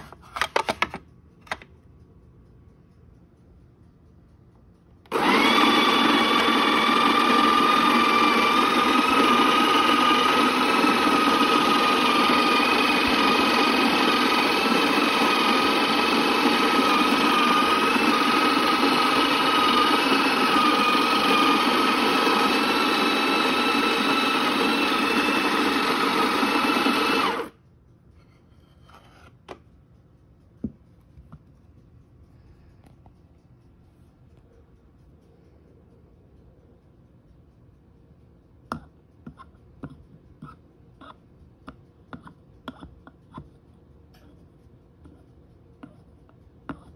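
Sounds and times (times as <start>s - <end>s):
coffee grinder motor whine: 5.1s - 27.6s.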